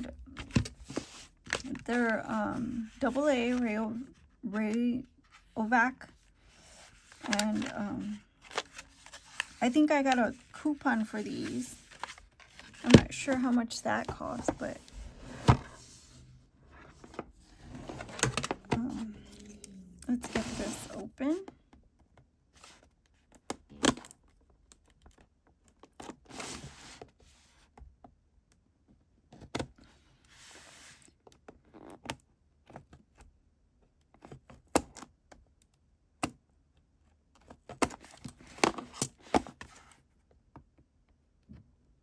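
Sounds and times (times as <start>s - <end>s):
cardboard scraping rustles: 20.1s - 21.4s.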